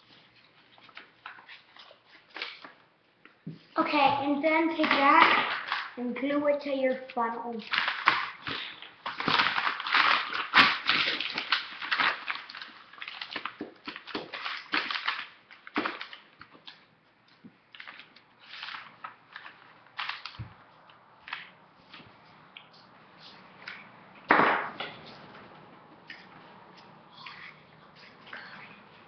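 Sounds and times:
paper rustling and crinkling: 0.0s - 2.8s, 6.9s - 23.9s.

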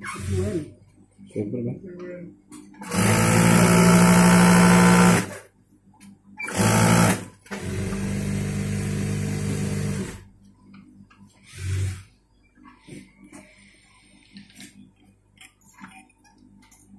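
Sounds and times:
industrial sewing machine stitching: 2.8s - 5.4s, 6.4s - 10.2s.

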